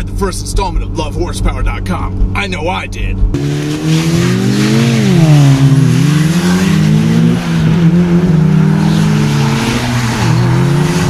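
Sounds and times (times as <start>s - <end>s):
car engine accelerating hard: 3.1s - 11.0s.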